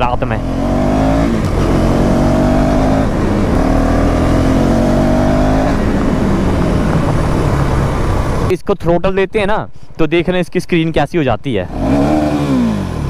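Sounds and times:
motorcycle engine revving: 0:00.0 - 0:08.5, 0:11.7 - 0:13.0
wind rumble on microphone: 0:00.8 - 0:08.5.

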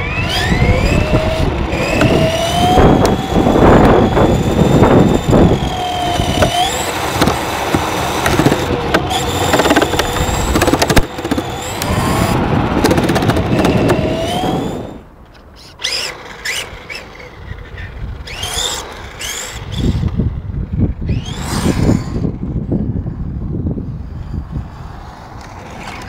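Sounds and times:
electric motor whining: 0:00.0 - 0:22.8
rough rolling noise: 0:00.2 - 0:19.6.

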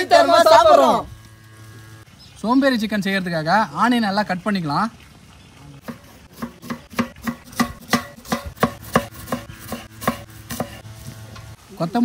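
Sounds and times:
knife chopping on wooden board: 0:05.8 - 0:10.8.

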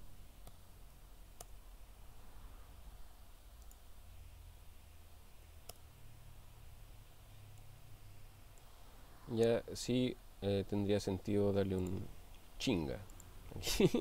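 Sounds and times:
computer mouse clicks: 0:01.4 - 0:01.6, 0:03.6 - 0:03.8, 0:05.6 - 0:05.9.

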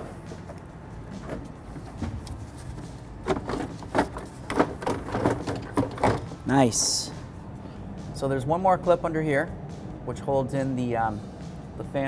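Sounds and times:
plastic fan shroud clattering: 0:01.2 - 0:06.4.

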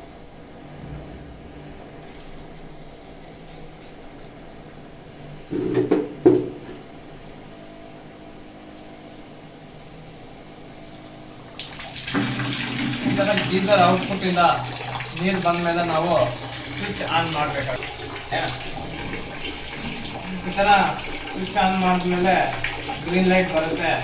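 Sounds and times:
water surging: 0:11.6 - 0:24.0
water hissing through hoses: 0:12.0 - 0:24.0.

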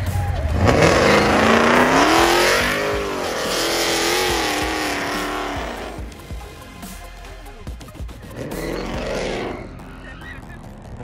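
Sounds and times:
tyres spinning and squealing: 0:00.1 - 0:06.0, 0:08.0 - 0:11.0
car engine revving high: 0:00.5 - 0:06.2, 0:08.3 - 0:09.8.

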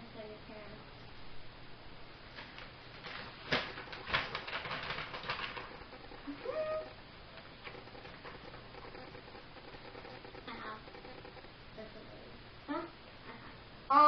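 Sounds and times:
paper rustling: 0:02.3 - 0:06.4.

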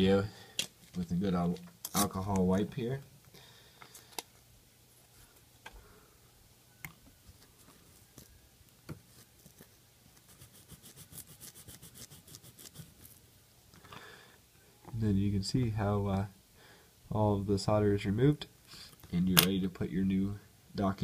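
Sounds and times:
wipe rubbing on circuit board: 0:10.2 - 0:13.2.

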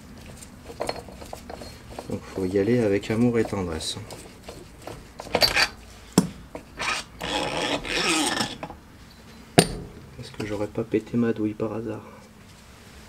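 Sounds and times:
metal rasping and creaking: 0:00.3 - 0:10.6.

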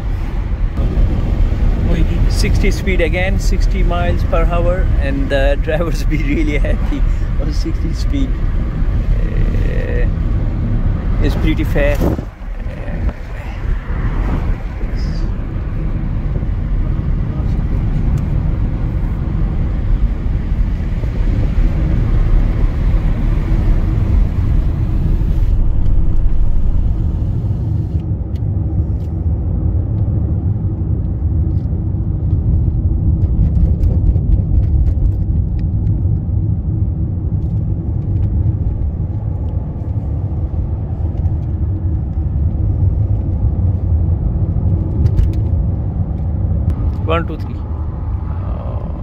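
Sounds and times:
road and engine rumble in car: 0:00.0 - 0:49.0.

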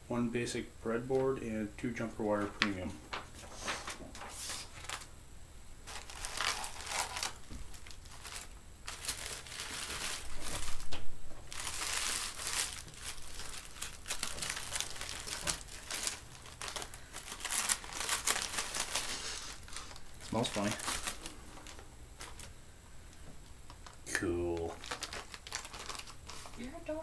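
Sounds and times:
packing paper crinkling: 0:02.3 - 0:05.1, 0:05.8 - 0:22.5, 0:23.7 - 0:27.0.

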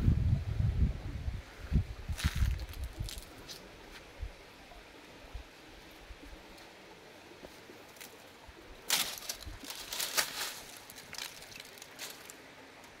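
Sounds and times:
dry leaves crunching: 0:02.2 - 0:03.6, 0:08.8 - 0:12.4.

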